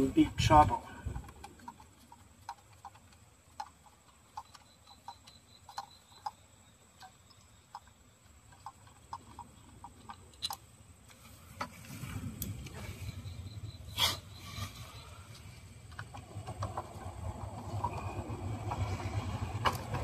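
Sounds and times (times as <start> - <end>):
small clicks of tool work: 1.1 - 11.8.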